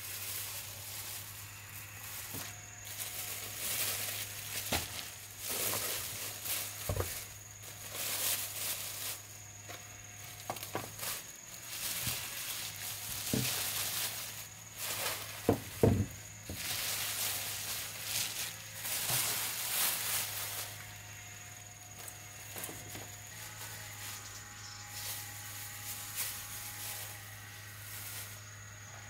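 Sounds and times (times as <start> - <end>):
plastic bags rustling: 0.0 - 24.3, 24.9 - 28.6
items knocking on wooden table: 15.4 - 16.2.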